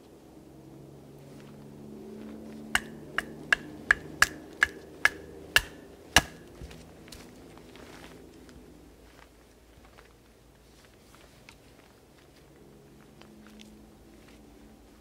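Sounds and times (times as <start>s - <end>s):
baton striking knife spine: 2.8s - 6.5s.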